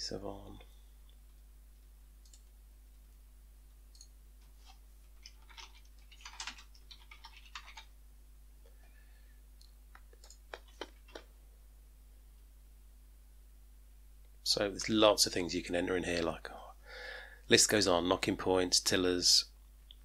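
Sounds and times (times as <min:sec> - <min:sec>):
low electrical hum: 0:00.0 - 0:20.0
fingers tapping touchscreen: 0:09.6 - 0:11.3.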